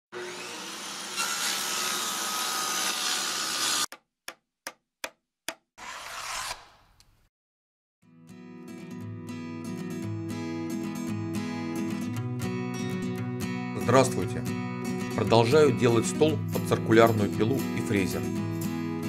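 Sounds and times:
harsh cutting noise: 0:05.6 - 0:07.2
guitar music: 0:08.1 - 0:19.0.

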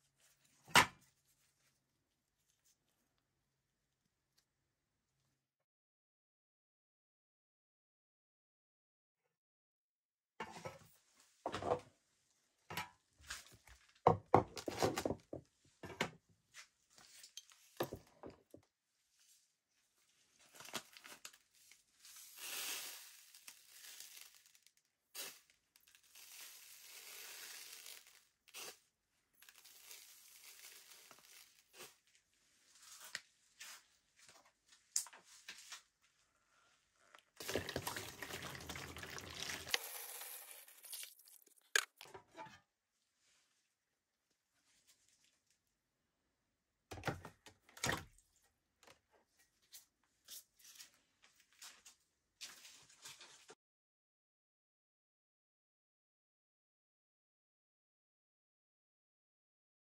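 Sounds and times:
scraping or rustling: 0:37.4 - 0:41.6.

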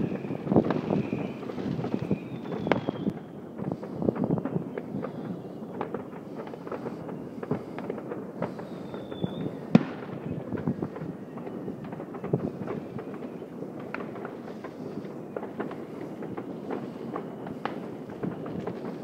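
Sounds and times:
distant fireworks crackling: 0:00.0 - 0:19.0
high whistle: 0:02.0 - 0:03.1, 0:08.8 - 0:09.6.

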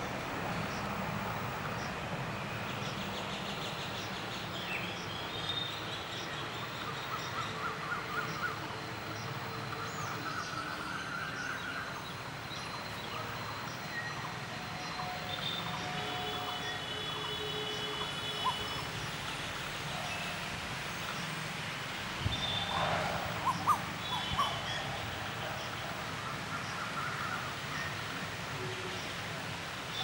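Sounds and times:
traffic hum: 0:00.0 - 0:30.0
birds chirping: 0:17.2 - 0:19.0, 0:22.2 - 0:25.8
koel calling: 0:23.4 - 0:24.8.

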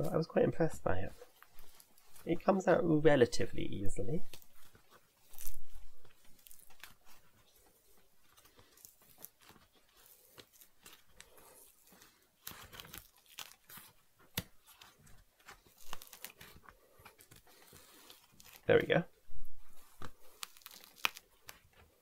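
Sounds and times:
foam tearing and crackling: 0:03.9 - 0:07.6, 0:08.3 - 0:19.0, 0:19.8 - 0:21.8.

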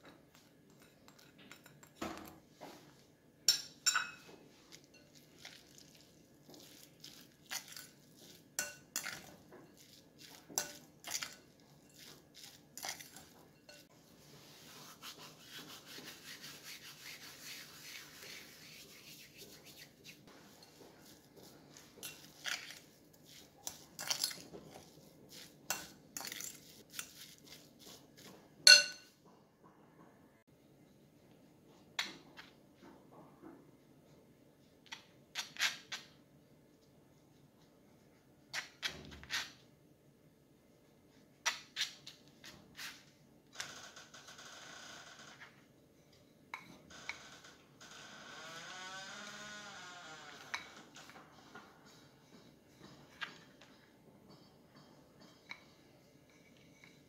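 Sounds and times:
fork clinking against glass bowl: 0:03.5 - 0:04.2, 0:08.6 - 0:12.2, 0:28.7 - 0:29.1.

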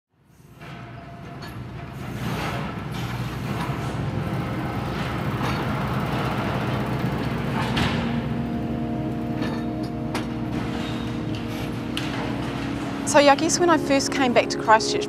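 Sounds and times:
heavy engine rumbling: 0:00.2 - 0:15.0
sharp metal clanks: 0:09.2 - 0:13.8.

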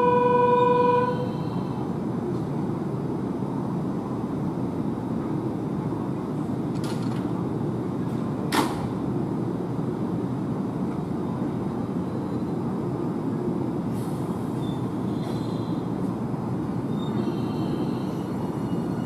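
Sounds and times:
electric train whining: 0:00.0 - 0:01.9.

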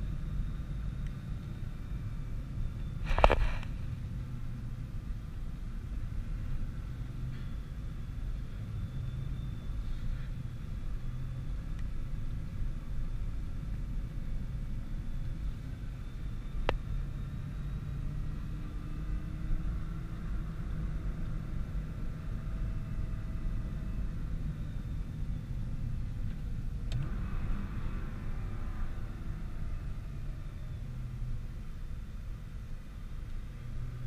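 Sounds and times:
car engine and road noise rumble: 0:00.0 - 0:34.0.

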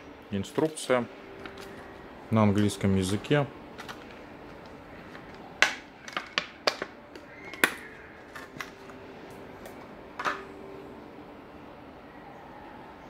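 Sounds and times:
plastic bag crinkling: 0:02.5 - 0:09.0.

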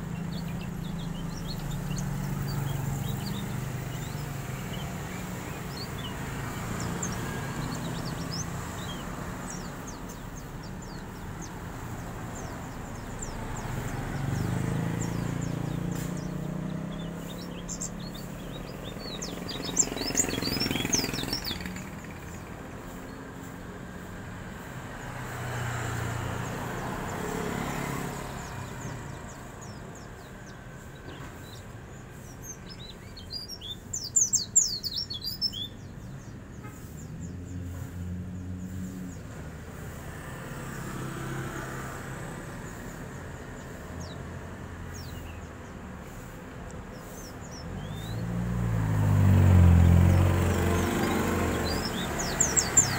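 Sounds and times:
bird rapid high chirping: 0:00.0 - 0:22.6, 0:28.2 - 0:37.4, 0:46.9 - 0:48.4, 0:50.5 - 0:52.9.

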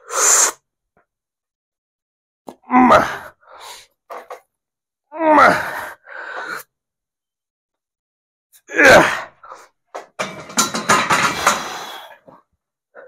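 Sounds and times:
man grunting with effort: 0:05.2 - 0:05.8, 0:08.7 - 0:09.3
heavy breaths: 0:05.5 - 0:06.7, 0:11.0 - 0:13.0
knocks: 0:10.0 - 0:11.7.

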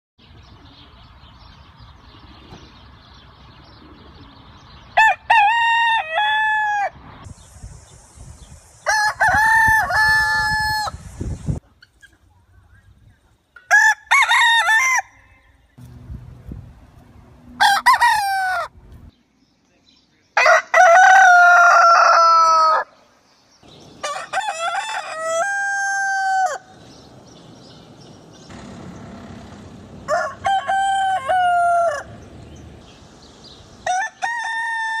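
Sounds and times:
roosters crowing: 0:05.0 - 0:07.1, 0:08.8 - 0:11.1, 0:13.6 - 0:15.7, 0:17.4 - 0:19.1, 0:20.4 - 0:23.0, 0:23.7 - 0:27.4, 0:28.5 - 0:35.0.

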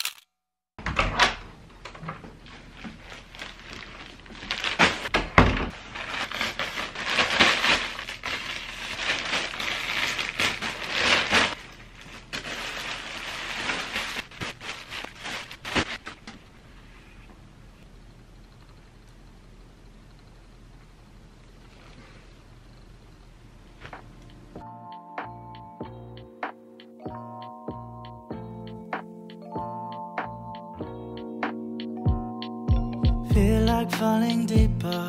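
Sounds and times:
plastic mailer bag crinkling: 0:00.0 - 0:00.2, 0:02.4 - 0:16.3.

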